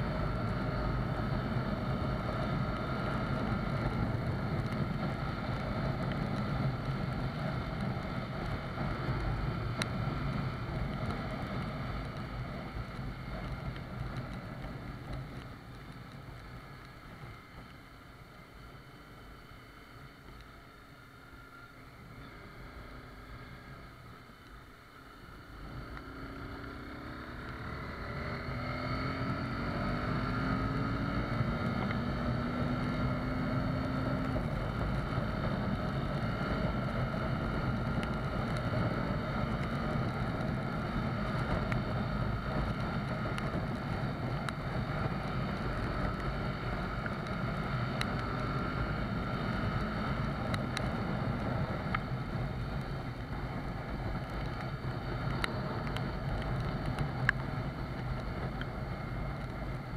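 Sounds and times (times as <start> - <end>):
rain noise: 0.0 - 59.9
motorcycle engine: 25.0 - 59.9.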